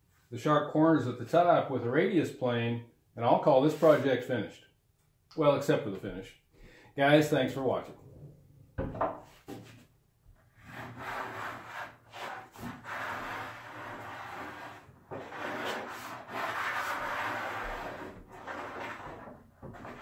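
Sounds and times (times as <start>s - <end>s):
hand plane shaving wood: 10.6s - 20.0s.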